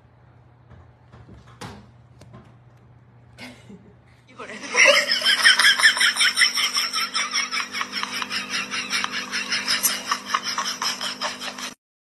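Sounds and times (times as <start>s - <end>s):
person giggling breathily: 9.0s - 11.8s.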